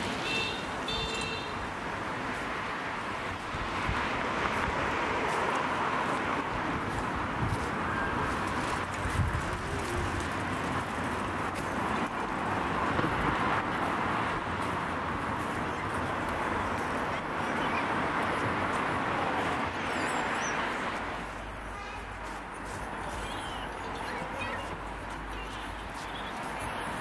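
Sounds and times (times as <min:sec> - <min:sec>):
road traffic noise: 0:00.0 - 0:27.0
faint voices: 0:04.6 - 0:12.8, 0:13.9 - 0:27.0.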